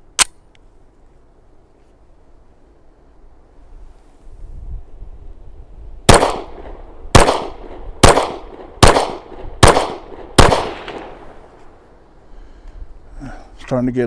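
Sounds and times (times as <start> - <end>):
pistol shots with echo: 6.1 - 11.2.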